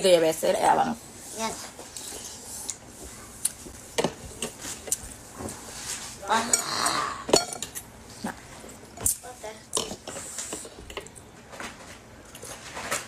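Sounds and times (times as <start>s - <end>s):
cutlery clinking against bowl: 7.3s - 7.8s.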